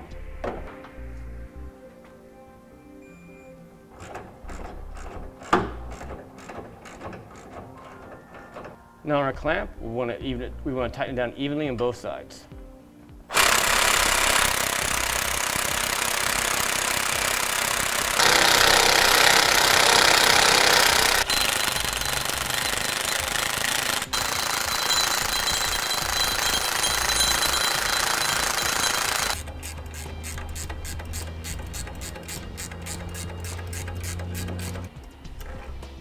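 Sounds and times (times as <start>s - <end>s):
impact wrench hammering: 13.3s - 34.8s.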